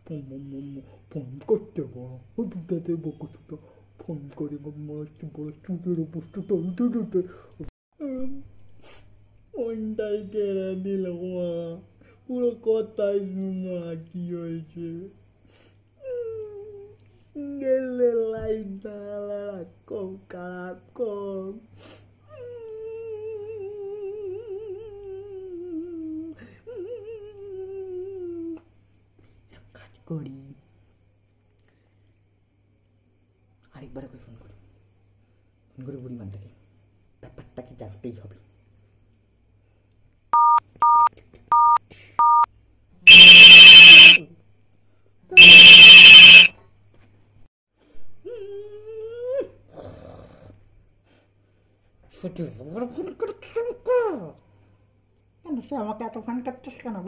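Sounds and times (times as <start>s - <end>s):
man humming: 22.6s - 28.6s
phone keypad beeps: 40.4s - 42.5s.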